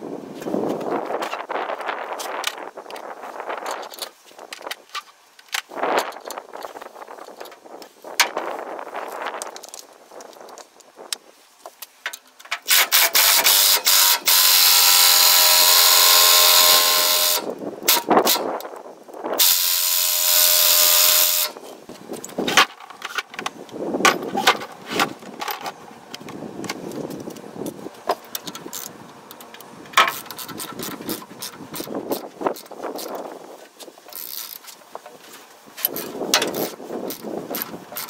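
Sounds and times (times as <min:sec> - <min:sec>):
power tool whining: 0:12.7 - 0:18.4, 0:19.4 - 0:21.6.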